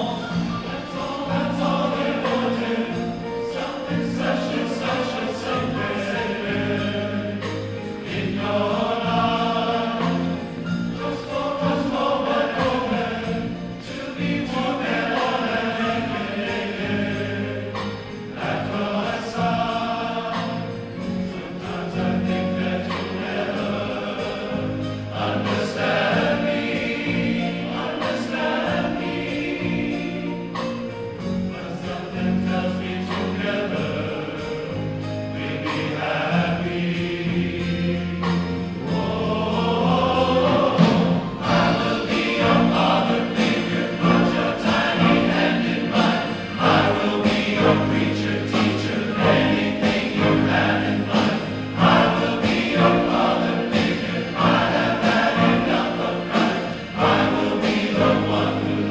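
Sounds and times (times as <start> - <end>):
large men's chorus singing: 0.0 - 58.9.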